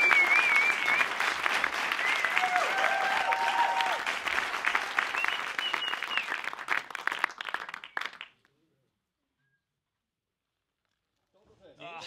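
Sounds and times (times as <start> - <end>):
whistles: 0.0 - 2.6, 5.0 - 6.7, 7.7 - 8.3
audience applauding and cheering: 0.0 - 8.4.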